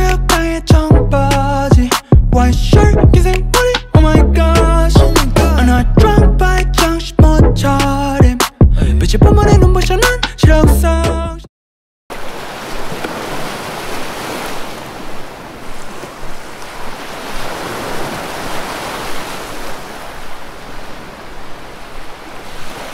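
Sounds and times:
music: 0.0 - 11.5
ocean surf rushing: 12.1 - 22.9.

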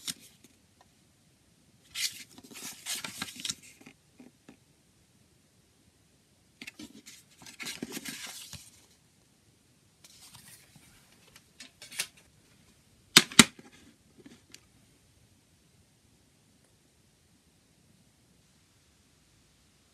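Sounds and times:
paper booklet rustling: 1.9 - 4.0, 6.6 - 9.0, 10.0 - 12.2.

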